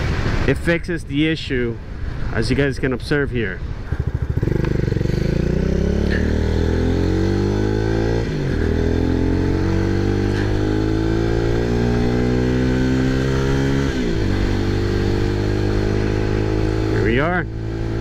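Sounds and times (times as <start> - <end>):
motorcycle engine accelerating: 3.8 - 18.0.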